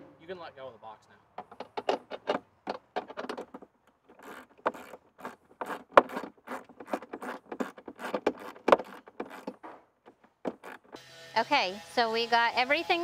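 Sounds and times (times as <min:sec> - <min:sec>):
plastic clicks and rattles: 0:01.4 - 0:11.0
sharp knocks: 0:01.4 - 0:11.0.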